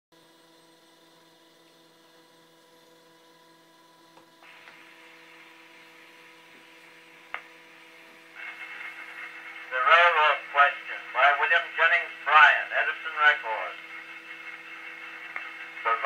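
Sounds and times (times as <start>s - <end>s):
faint steady hum: 0.2s - 16.0s
cylinder surface hiss: 4.5s - 16.0s.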